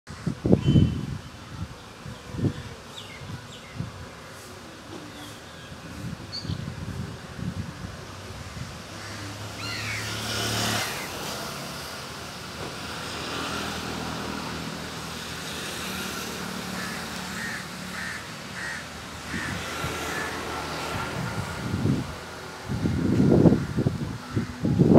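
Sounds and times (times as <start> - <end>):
town ambience: 0.1 - 24.9
motor vehicle passing: 8.5 - 24.5
crow cawing: 16.7 - 20.4.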